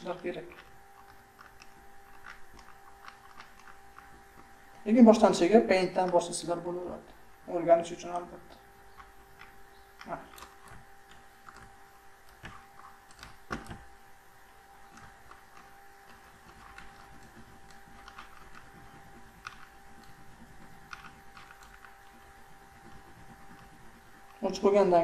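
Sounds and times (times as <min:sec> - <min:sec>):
computer mouse clicking: 0:00.0 - 0:06.4, 0:08.0 - 0:24.8
faint electrical hum: 0:00.0 - 0:25.0.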